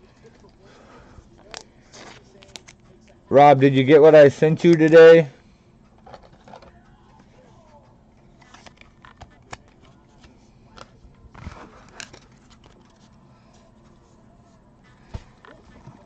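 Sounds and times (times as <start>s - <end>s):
trading cards clicking and rustling: 1.4s - 2.9s, 3.8s - 5.2s, 5.9s - 13.6s.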